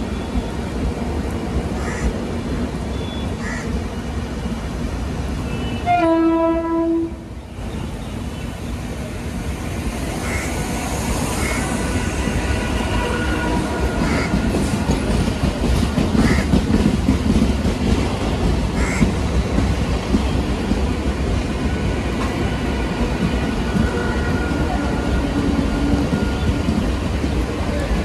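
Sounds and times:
train horn: 5.5 - 7.3, 11.4 - 14.6, 23.6 - 26.8
train wheels clickety-clack: 10.1 - 28.0.

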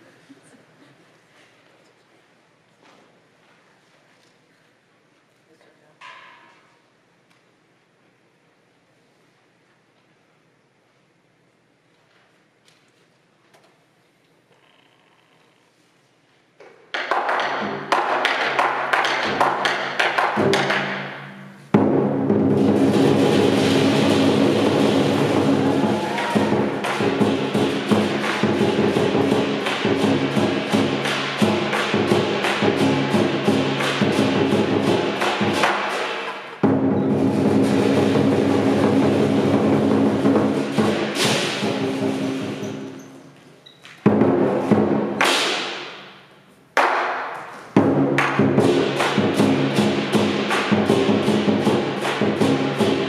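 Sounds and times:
large drum beating: 17.2 - 43.0, 44.1 - 45.8, 47.8 - 53.0.

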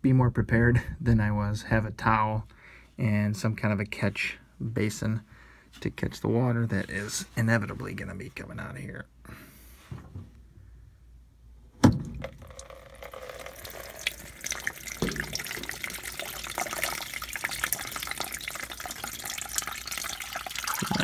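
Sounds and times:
water pouring into plastic basin: 12.0 - 21.0.

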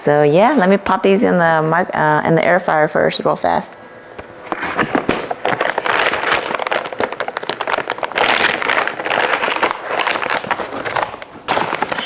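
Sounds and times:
packaging crinkling: 4.4 - 12.0.

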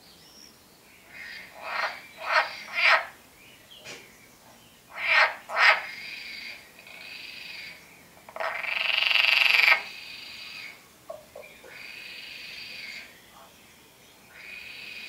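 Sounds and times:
frog croaking: 1.1 - 3.2, 4.9 - 13.5, 14.3 - 15.0.

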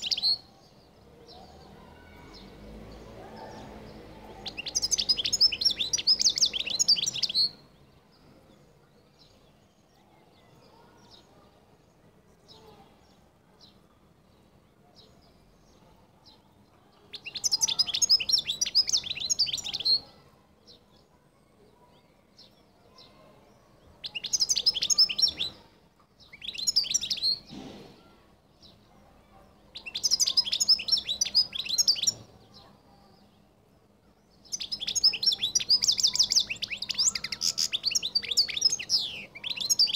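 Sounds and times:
finch twittering song: 0.0 - 2.5, 4.4 - 8.2, 16.9 - 21.0, 24.0 - 28.8, 29.7 - 32.6, 34.2 - 39.9.

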